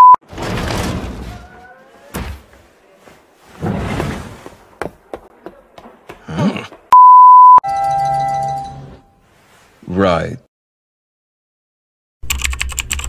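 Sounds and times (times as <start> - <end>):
steady electronic beep: 0.0 - 0.2, 7.0 - 7.7.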